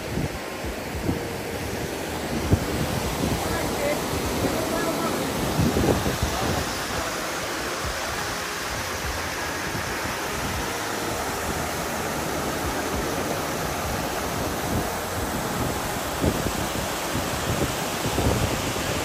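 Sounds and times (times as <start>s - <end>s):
creek water running: 0.0s - 19.0s.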